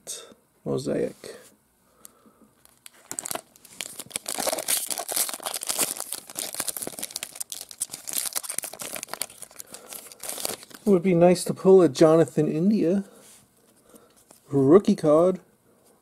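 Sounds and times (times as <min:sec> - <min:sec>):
foil wrapper crinkling: 0:02.6 - 0:10.9.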